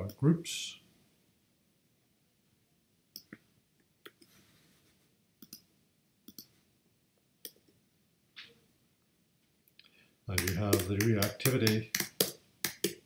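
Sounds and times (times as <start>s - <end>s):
faint computer mouse clicks: 5.4s - 5.7s, 6.3s - 6.5s.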